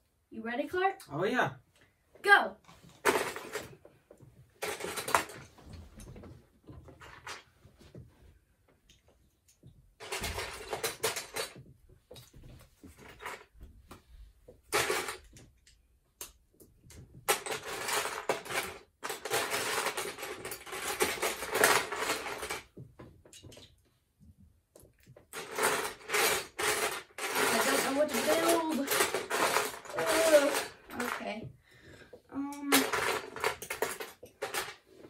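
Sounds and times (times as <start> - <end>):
plastic bricks clattering in a tub: 2.9 - 3.8, 4.6 - 5.5, 10.0 - 11.7, 14.7 - 23.8, 24.8 - 31.5, 32.5 - 34.9.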